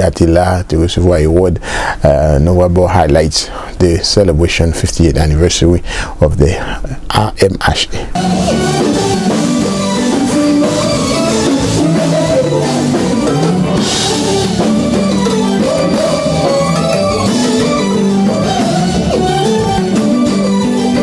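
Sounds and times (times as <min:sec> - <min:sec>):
bass notes: 0:08.2 - 0:21.0
drum kit: 0:08.2 - 0:21.0
electric guitar: 0:08.2 - 0:21.0
live band playing: 0:08.2 - 0:21.0.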